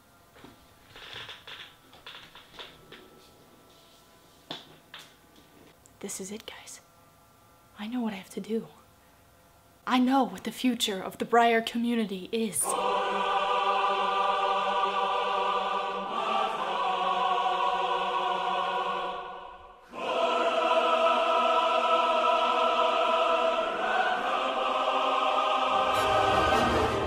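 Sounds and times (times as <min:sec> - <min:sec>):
dramatic music with held chords: 0:23.8 - 0:27.0.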